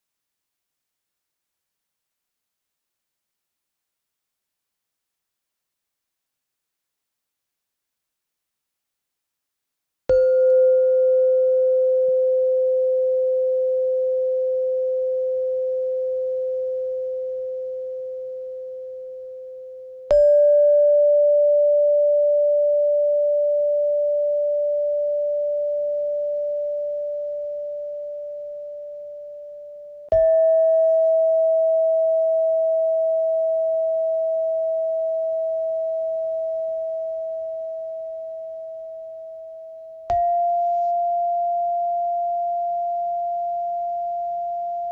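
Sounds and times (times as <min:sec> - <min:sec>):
bell-like tones ringing: 0:20.0 - 0:44.9.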